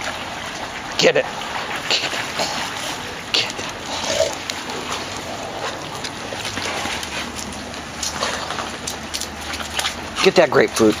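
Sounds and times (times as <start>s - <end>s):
dog vocalizing: 1.7s - 9.0s.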